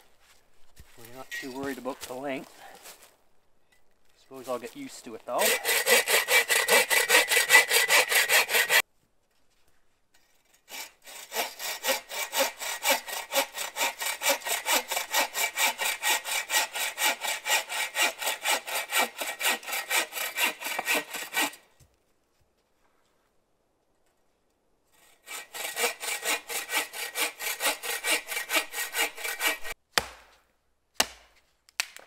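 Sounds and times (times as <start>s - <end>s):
saw cutting wood: 4.8s - 8.8s, 10.7s - 21.6s, 24.9s - 29.8s.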